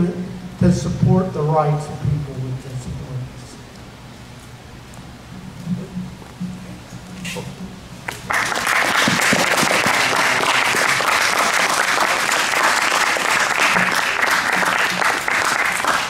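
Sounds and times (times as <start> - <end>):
students applauding: 8.1 - 16.0.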